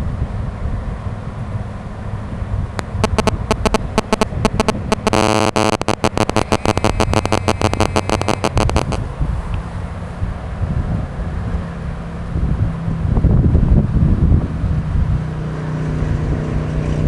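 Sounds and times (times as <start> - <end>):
wind rumble on microphone: 0.0 - 17.0
buzzing radio interference static: 2.8 - 9.0.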